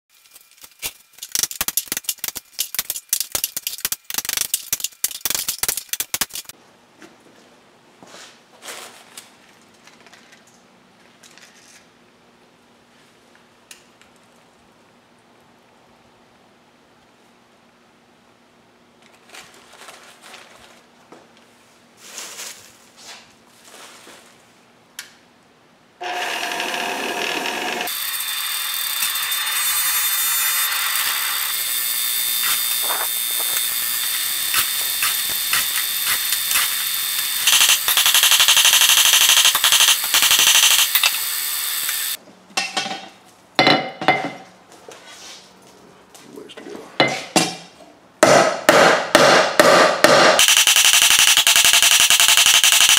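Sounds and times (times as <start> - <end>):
crumpled paper crackling: 19.1 - 20.9, 22.0 - 24.5
electric blower whining: 26.0 - 42.2.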